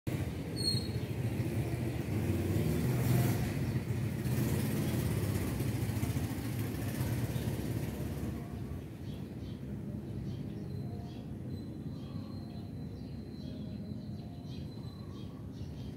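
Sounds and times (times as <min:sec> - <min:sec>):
passing vehicle rumble: 0:00.1 - 0:15.9.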